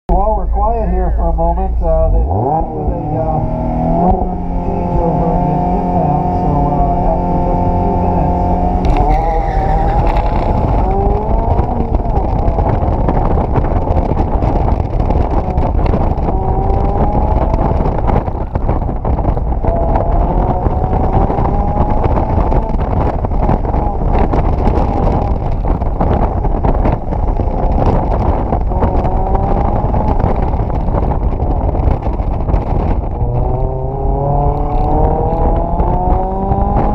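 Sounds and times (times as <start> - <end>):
car engine revving: 0.1 - 36.9.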